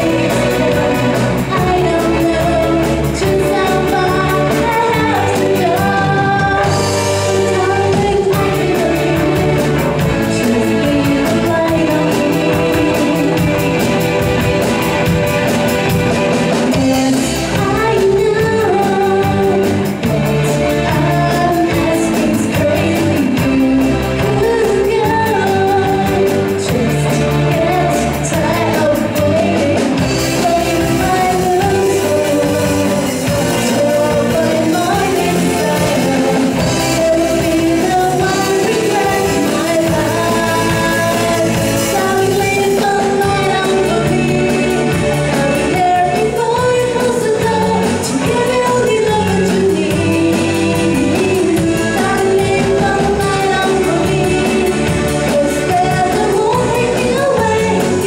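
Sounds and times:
live rock band playing: 0.0s - 58.0s
woman singing lead: 0.0s - 58.0s.

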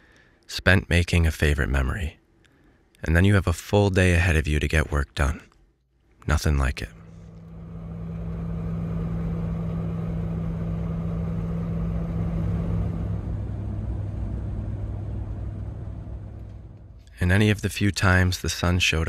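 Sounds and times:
vehicle engine and road noise: 6.8s - 17.5s.

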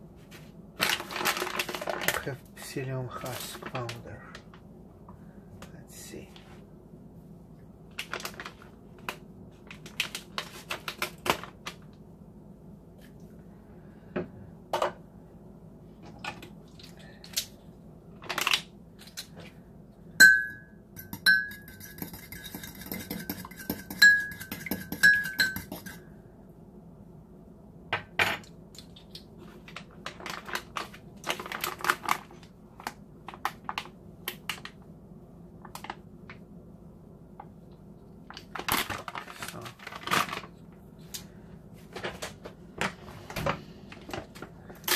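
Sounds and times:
utensils and packaging handled: 0.8s - 2.4s, 28.8s - 33.8s, 38.3s - 41.3s
fork clinking against mug: 20.2s - 26.0s.

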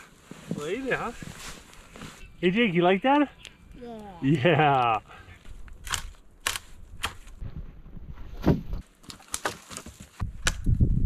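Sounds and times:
rustling: 0.0s - 2.6s
wood cracking and snapping: 8.9s - 10.7s.

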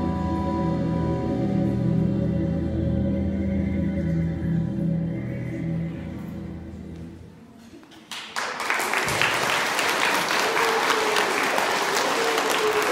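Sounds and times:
music: 0.0s - 7.5s
audience applauding: 8.0s - 12.9s.

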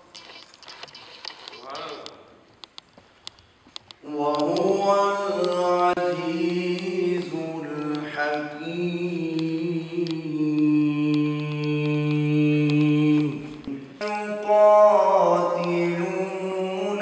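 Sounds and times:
man chanting: 4.0s - 17.0s.

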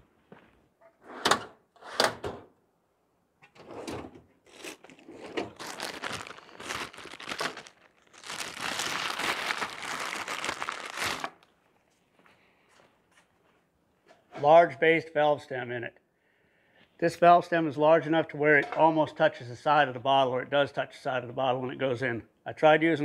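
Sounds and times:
rustling and scraping of objects: 3.6s - 14.6s.

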